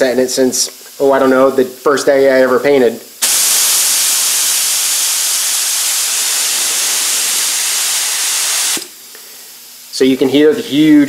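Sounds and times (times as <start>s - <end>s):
spray gun air hiss: 3.2s - 9.0s.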